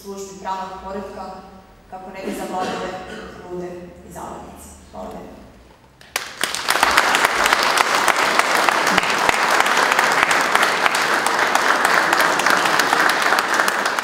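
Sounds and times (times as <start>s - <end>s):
crowd applauding: 6.0s - 14.0s.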